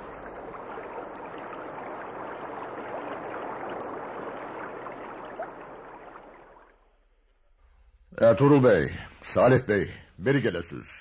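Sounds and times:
running water rushing: 0:00.0 - 0:07.1.

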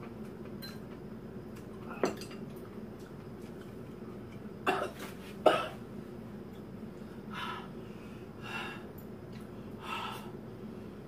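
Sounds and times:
woman coughing: 0:04.7 - 0:05.8.

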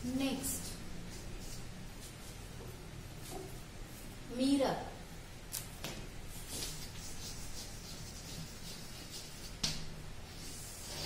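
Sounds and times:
chalk scratching on blackboard: 0:00.4 - 0:02.4, 0:06.3 - 0:11.0
chalk tap: 0:05.8 - 0:09.9.

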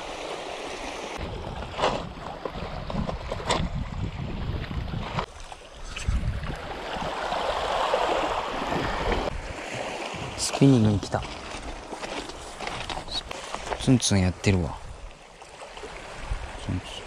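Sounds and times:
wind buffeting microphone: 0:01.2 - 0:11.8, 0:16.0 - 0:17.0
lapping sea water: 0:04.5 - 0:12.3.

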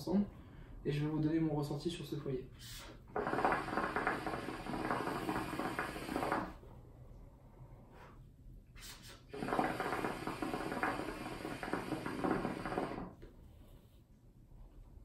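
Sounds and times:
hookah water bubbling: 0:03.0 - 0:06.7, 0:09.3 - 0:13.2.

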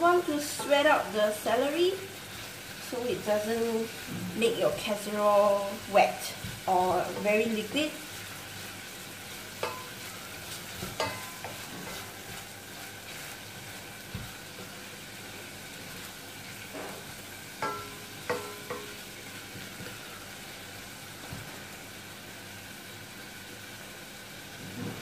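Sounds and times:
celery sizzling in butter: 0:00.0 - 0:25.0
wooden spoon knocking on metal pot: 0:17.6 - 0:19.0.

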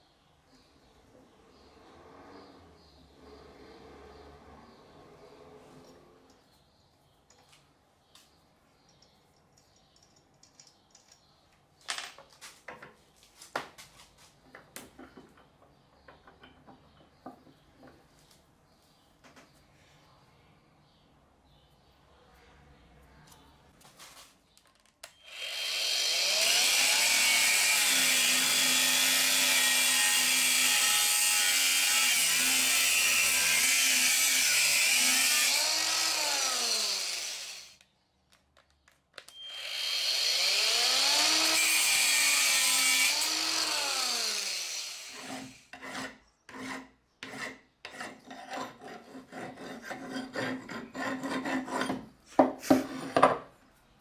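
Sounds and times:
angle grinder cutting steel: 0:25.2 - 0:37.8, 0:39.4 - 0:46.0
hand file rasping on steel: 0:45.0 - 0:53.2.

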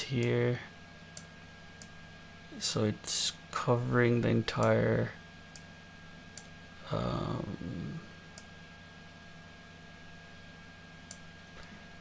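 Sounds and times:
faint high whine: 0:00.0 - 0:12.0
man's voice murmuring: 0:06.8 - 0:08.1
computer mouse clicks: 0:11.1 - 0:11.3.

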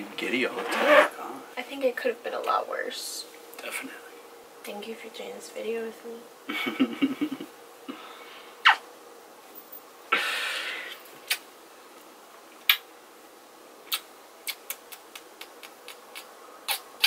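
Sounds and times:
kissing smacks: 0:08.6 - 0:08.8, 0:11.0 - 0:11.5, 0:12.6 - 0:12.9, 0:13.8 - 0:17.0.

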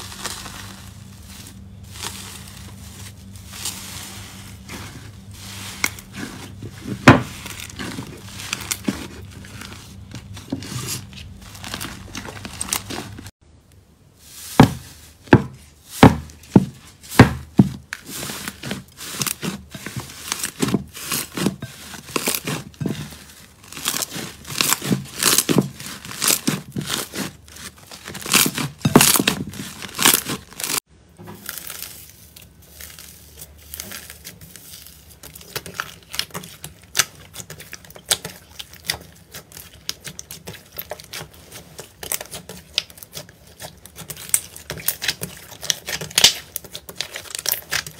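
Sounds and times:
slime popping and crackling: 0:00.0 - 0:03.8, 0:23.6 - 0:30.8, 0:32.8 - 0:47.9.

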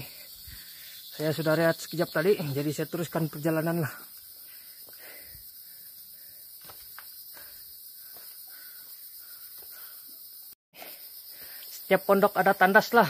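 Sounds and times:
high-pitched insect drone: 0:00.0 - 0:13.0
footsteps on rocky trail: 0:06.5 - 0:09.8.

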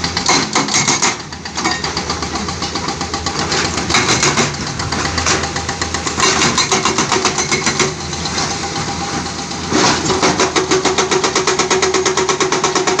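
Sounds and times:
excavator diesel engine running: 0:00.0 - 0:13.0.

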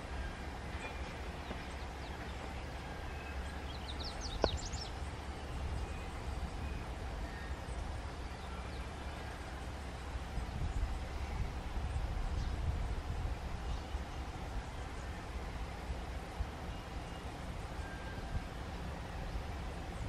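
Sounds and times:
diesel locomotive rumbling: 0:00.0 - 0:20.0
bird chirps: 0:00.2 - 0:09.4.

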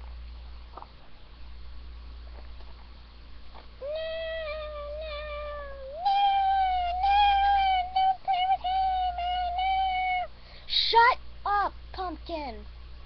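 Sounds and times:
child singing long high notes: 0:03.8 - 0:10.3.

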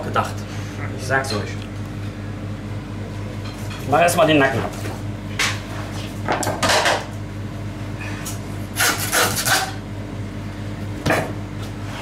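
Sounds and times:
steady low hum: 0:00.0 - 0:08.8
knife cutting and scraping meat: 0:08.8 - 0:09.8.

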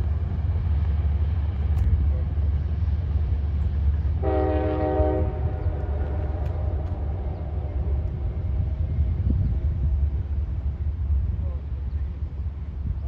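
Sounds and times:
steady low rumble: 0:00.0 - 0:04.3, 0:05.1 - 0:13.0
distant train horn: 0:04.2 - 0:08.8.

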